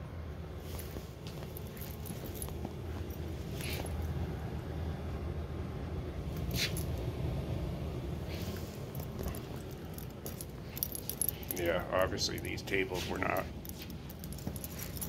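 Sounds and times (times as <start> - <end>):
steady low rumble: 0.0 - 15.0
keys jingling: 0.7 - 4.1, 6.4 - 7.1, 8.5 - 15.0.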